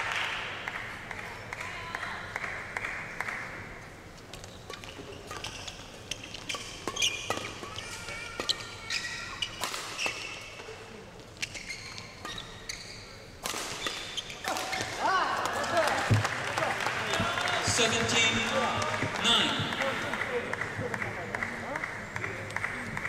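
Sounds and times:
rackets striking shuttlecock: 4.3s - 10.7s, 13.4s - 16.3s
shoe squeaks on court: 4.5s - 7.8s, 8.4s - 10.6s, 11.4s - 15.0s
crowd noise: 7.3s - 23.0s.

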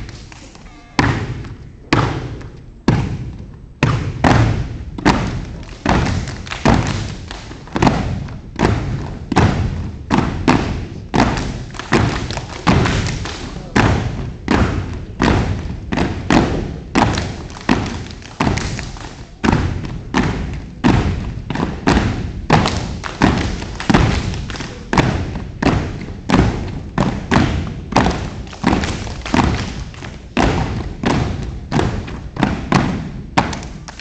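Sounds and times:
stomps and claps in unison: 0.0s - 34.0s.

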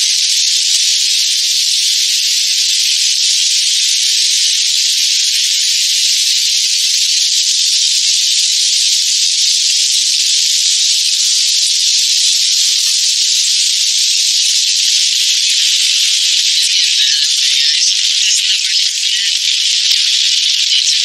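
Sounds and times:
high-pitched hiss: 0.0s - 21.0s.

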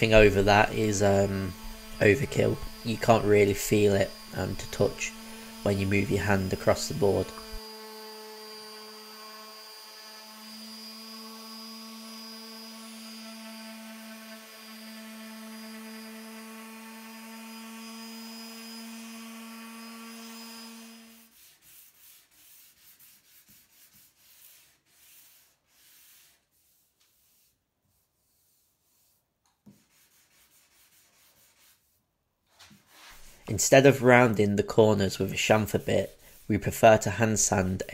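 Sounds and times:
sanding block rubbing wood: 0.0s - 7.7s, 20.3s - 32.0s, 35.1s - 37.9s
orbital sander running: 0.0s - 26.4s, 35.2s - 37.9s.

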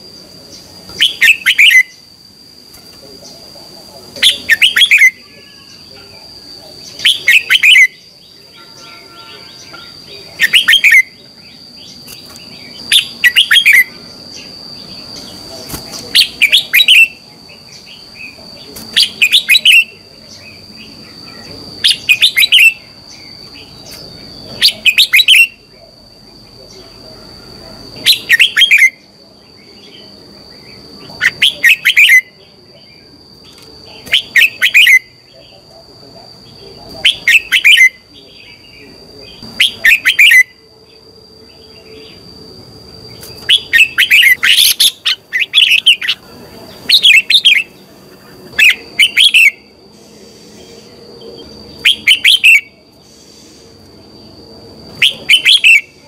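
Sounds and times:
bird singing short phrases: 6.8s - 15.3s.

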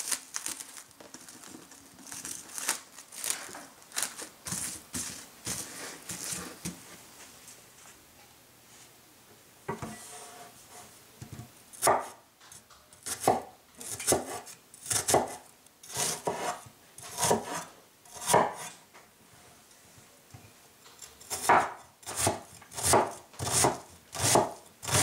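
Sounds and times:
cleaver slicing onion on board: 13.0s - 18.8s, 21.3s - 25.0s.

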